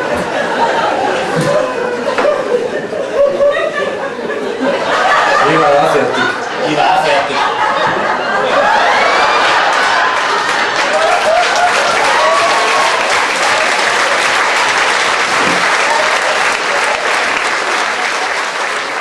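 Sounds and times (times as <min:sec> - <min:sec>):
audience applauding: 0:08.4 - 0:19.0.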